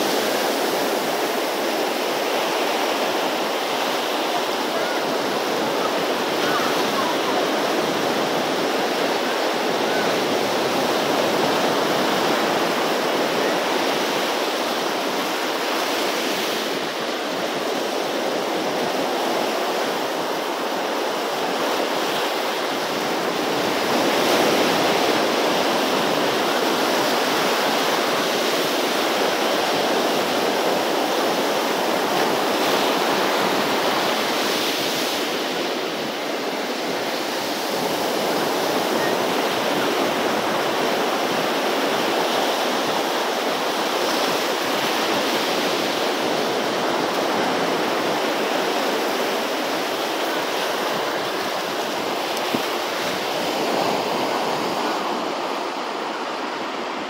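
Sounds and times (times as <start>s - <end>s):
surf breaking on beach: 0.0s - 57.0s.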